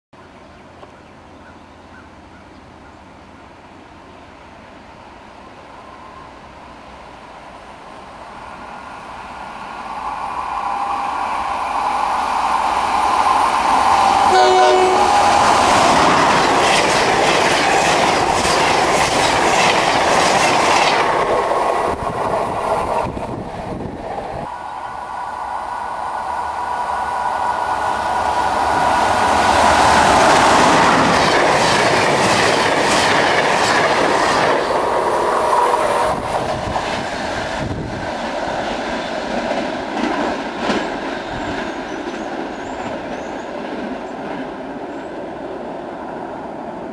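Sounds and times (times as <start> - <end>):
train rushing past: 3.0 - 46.9
train horn toot: 14.0 - 15.5.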